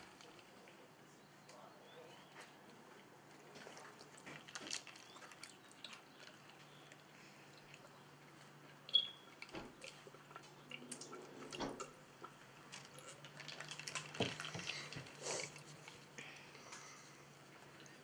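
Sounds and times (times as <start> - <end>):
wet liquid sounds: 3.3 - 18.0
brief squeak: 8.9 - 9.3
child gulping from plastic cup: 11.0 - 16.0.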